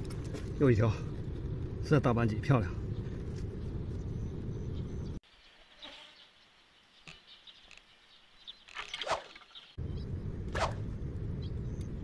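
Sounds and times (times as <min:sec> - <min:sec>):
wind rumble on microphone: 0:00.0 - 0:05.2, 0:09.8 - 0:12.0.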